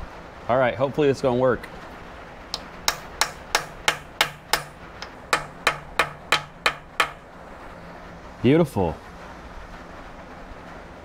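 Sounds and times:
hammer striking metal socket: 2.6s - 7.2s.

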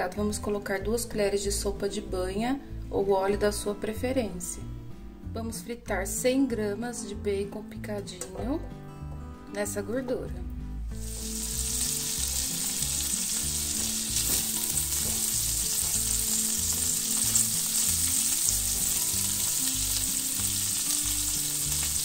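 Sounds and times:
bacon sizzling in a pot: 10.9s - 22.0s.

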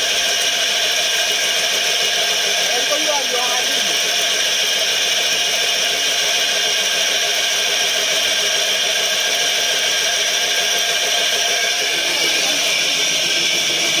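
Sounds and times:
briquette extruder machine running: 0.0s - 14.0s.

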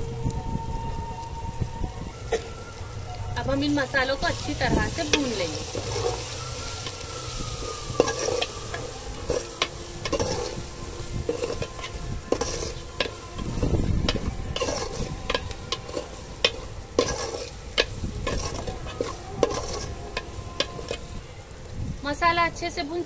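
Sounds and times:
spice paste sizzling in oil: 2.7s - 23.0s
spoon scraping pot: 4.3s - 6.4s, 7.6s - 21.1s.

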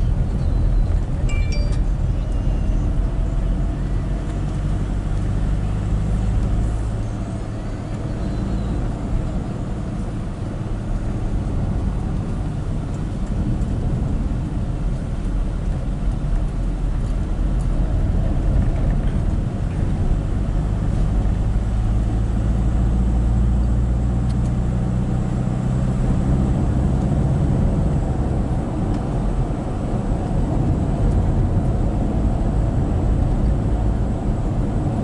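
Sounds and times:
vehicle engine and road noise: 0.0s - 35.0s.

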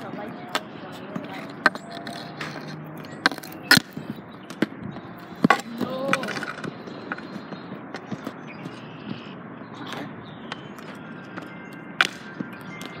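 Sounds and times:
hockey stick striking ball: 12.0s - 12.4s.

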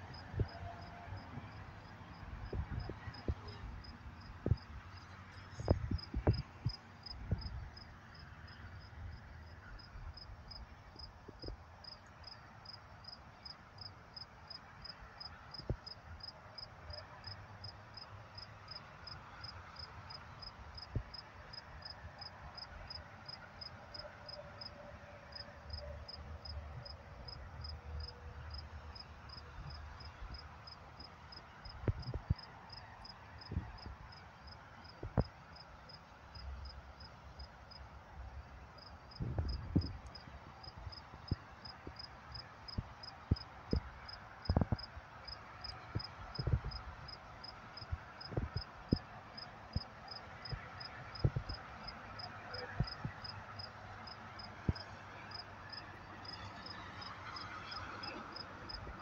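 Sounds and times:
cricket chirping: 0.1s - 35.3s, 49.4s - 59.0s.

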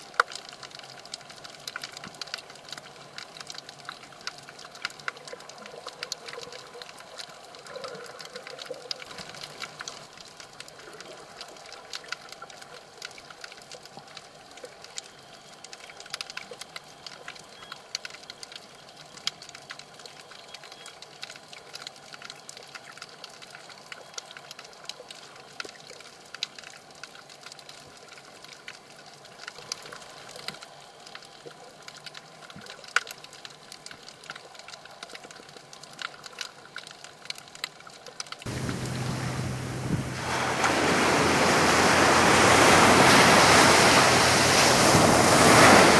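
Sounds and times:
crackling clicks underwater: 0.0s - 38.5s
underwater watery hiss: 38.5s - 45.9s.

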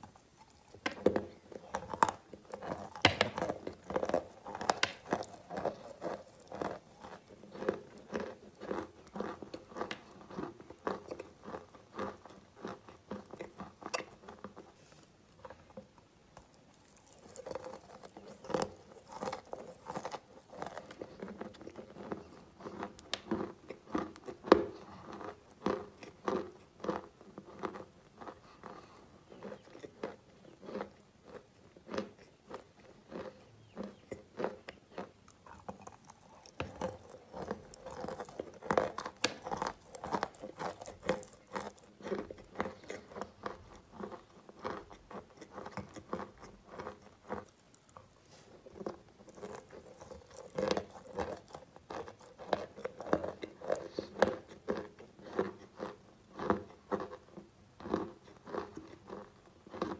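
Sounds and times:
quiet chewing: 0.0s - 59.9s
chalk crunching and snapping: 29.5s - 57.2s.

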